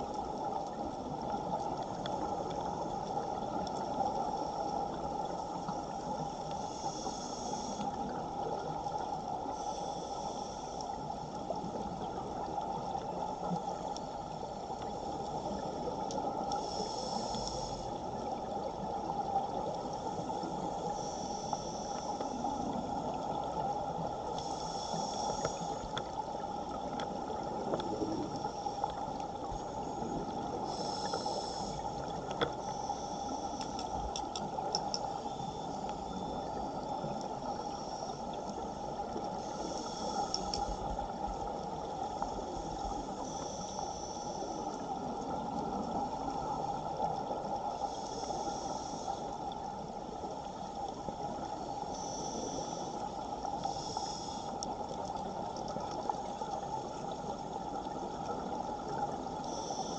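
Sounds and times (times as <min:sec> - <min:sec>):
underwater rush of water: 0:00.0 - 0:59.9
diver regulator breath hisses: 0:06.6 - 0:07.9, 0:16.6 - 0:17.9, 0:24.4 - 0:25.8, 0:30.6 - 0:31.9, 0:39.4 - 0:40.8, 0:47.8 - 0:49.4, 0:53.6 - 0:54.6, 0:59.4 - 0:59.9.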